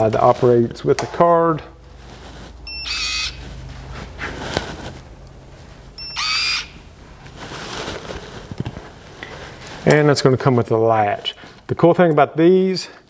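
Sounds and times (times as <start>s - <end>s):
short electronic beep: 2.6s - 3.4s, 6.0s - 6.6s.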